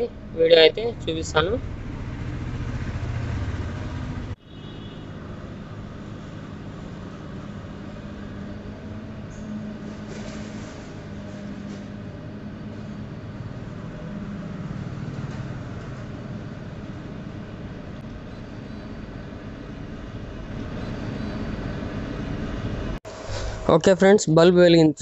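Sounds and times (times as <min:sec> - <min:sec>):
low rumble and hum: 0:05.1 - 0:23.9.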